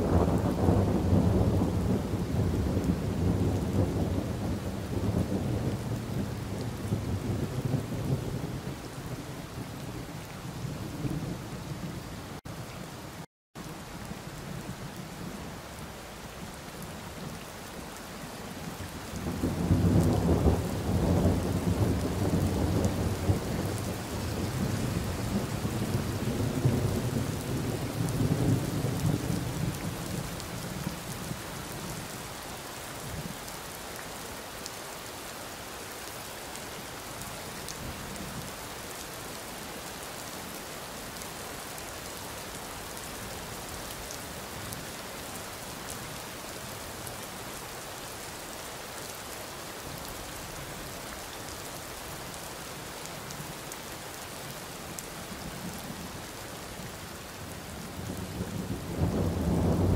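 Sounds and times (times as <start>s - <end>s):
thunder rolling: 58.2s - 59.9s.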